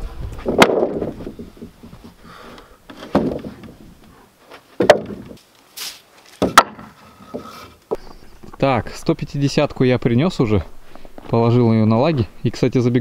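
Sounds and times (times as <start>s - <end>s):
wooden boards knocking on joists: 0.4s - 2.2s, 2.9s - 3.8s, 4.8s - 5.4s, 6.4s - 7.6s.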